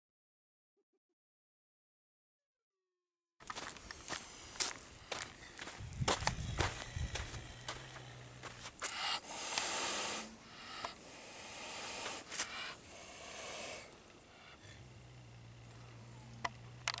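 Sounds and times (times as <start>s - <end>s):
wild cat hissing: 6.8s - 16.4s.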